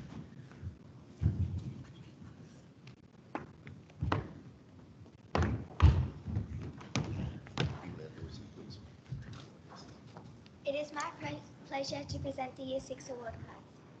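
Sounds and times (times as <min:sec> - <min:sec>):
low room noise: 0:00.0 - 0:14.0
thuds and knocks: 0:03.3 - 0:04.4, 0:05.3 - 0:07.9.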